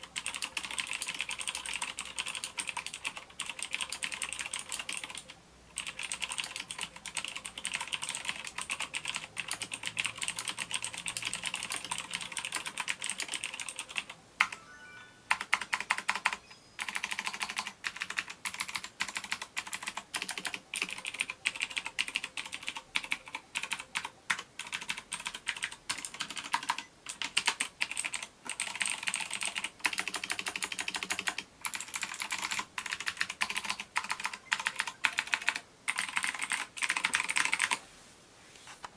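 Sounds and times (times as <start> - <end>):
mechanical keyboard typing: 0.0 - 14.6, 15.3 - 37.8.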